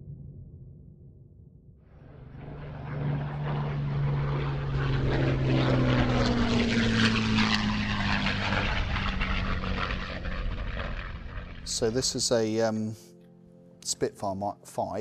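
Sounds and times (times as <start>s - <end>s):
propeller aircraft flying past: 1.9s - 12.9s.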